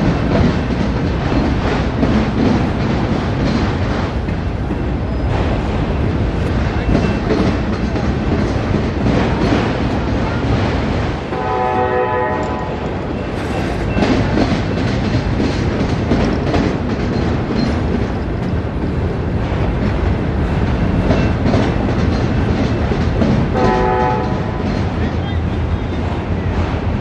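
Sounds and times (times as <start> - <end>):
wheels clacking over rail: 0.0 - 11.6, 12.4 - 27.0
train horn chord: 11.3 - 12.8, 23.5 - 24.6.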